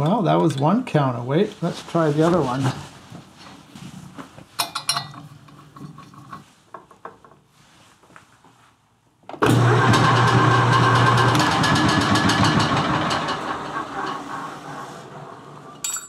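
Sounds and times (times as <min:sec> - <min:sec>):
metal lathe running: 0:09.5 - 0:15.6.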